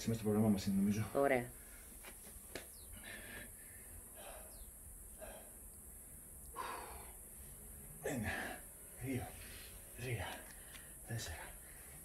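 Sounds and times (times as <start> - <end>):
man breathing hard: 2.9 - 5.7, 6.5 - 7.4, 8.0 - 8.7, 9.3 - 12.0
man sighing: 6.5 - 7.2.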